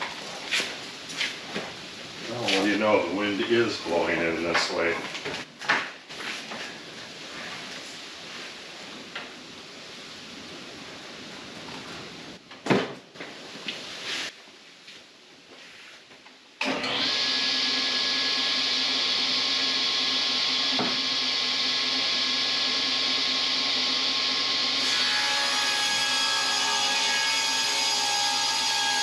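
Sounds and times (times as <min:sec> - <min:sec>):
table saw whining: 0:16.6 - 0:29.0.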